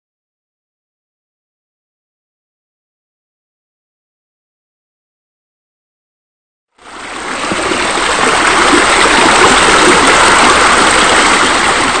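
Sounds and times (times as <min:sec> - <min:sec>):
water running and splashing: 0:06.8 - 0:12.0.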